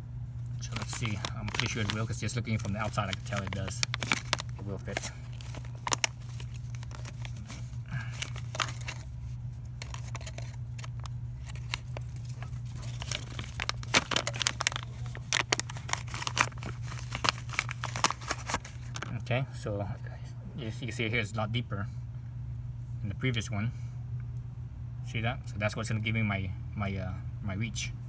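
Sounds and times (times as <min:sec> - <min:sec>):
steady low hum: 0:00.0 - 0:28.0
plastic packaging crinkling: 0:00.4 - 0:19.2.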